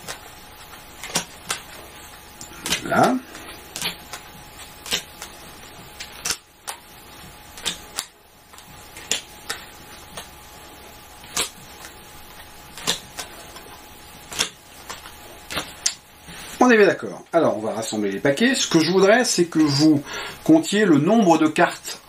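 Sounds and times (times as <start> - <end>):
playing cards slapping on table: 0.0 - 1.8, 2.5 - 5.4, 6.0 - 6.8, 7.6 - 10.3, 11.2 - 12.0, 12.7 - 13.7, 14.3 - 16.0.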